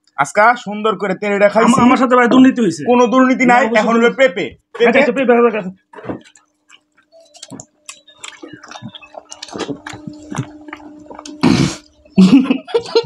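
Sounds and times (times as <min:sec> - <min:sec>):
wet slurping and smacking: 0:05.9 - 0:12.0
mouth clicks: 0:06.0 - 0:12.0.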